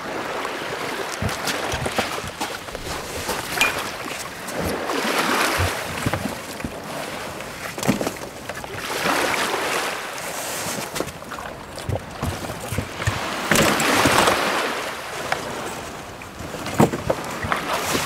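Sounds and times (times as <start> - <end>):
water splashing along boat hull: 0.0 - 18.0
wind on microphone: 1.2 - 7.0.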